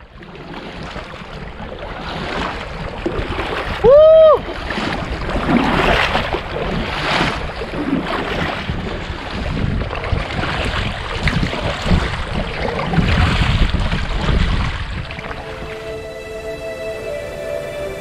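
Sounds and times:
paddle strokes splashing water: 0:00.0 - 0:16.0
wind buffeting microphone: 0:00.0 - 0:16.0.

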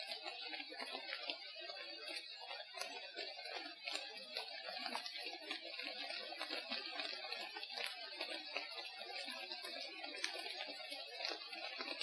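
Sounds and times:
crackling and clicking in forest: 0:02.0 - 0:09.2.

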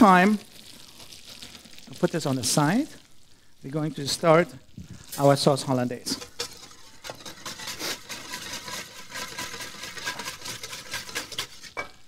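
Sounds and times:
whisk beating in metal bowl: 0:06.1 - 0:11.8.

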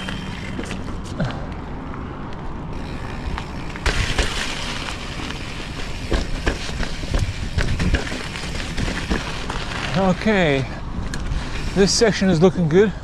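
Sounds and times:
tyre and wind rush: 0:00.0 - 0:13.0
bike knocks and rattles: 0:02.8 - 0:10.2.

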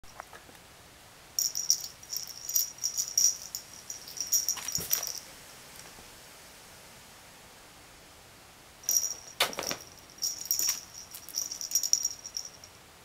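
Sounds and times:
small bell jingling: 0:01.4 - 0:05.3, 0:08.9 - 0:12.8.

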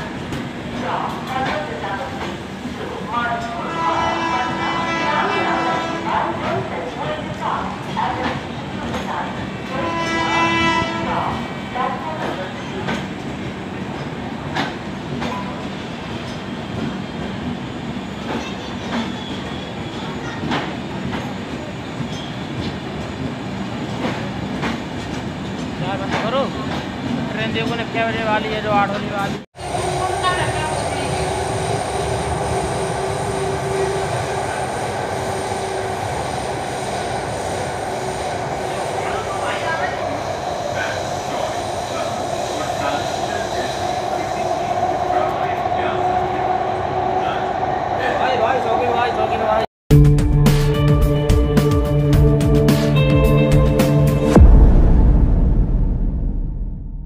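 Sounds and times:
train wheels rumbling on rails: 0:00.0 - 0:49.2.

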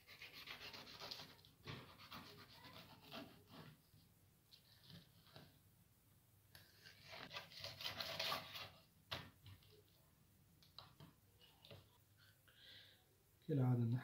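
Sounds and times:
knife scraping through fish: 0:07.0 - 0:08.7.

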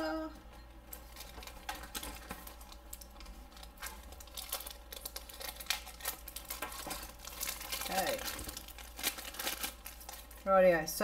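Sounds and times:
plastic wrapper crinkling: 0:00.9 - 0:10.9.

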